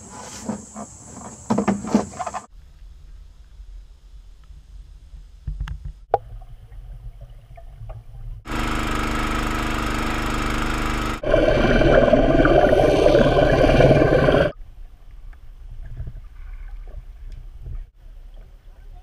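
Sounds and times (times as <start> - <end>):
engine hum: 7.9 - 14.6
propeller churning water: 8.4 - 14.6.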